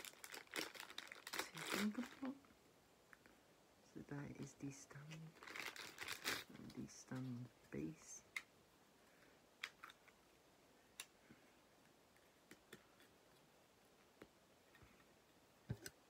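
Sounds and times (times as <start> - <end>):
faint plastic clicks and taps: 14.1 - 16.0.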